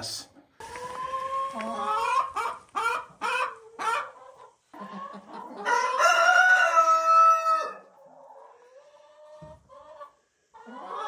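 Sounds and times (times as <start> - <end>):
rooster crowing: 5.7 - 7.8.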